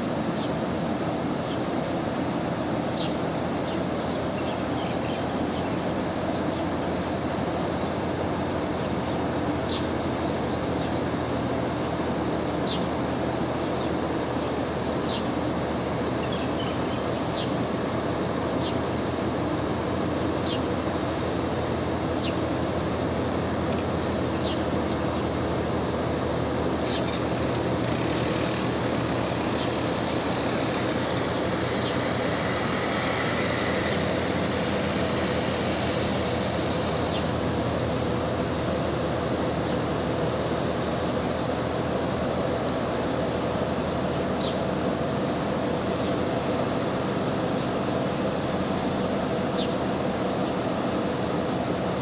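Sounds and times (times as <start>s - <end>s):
ship engine drone: 0.0s - 52.0s
rushing noise: 26.5s - 39.7s.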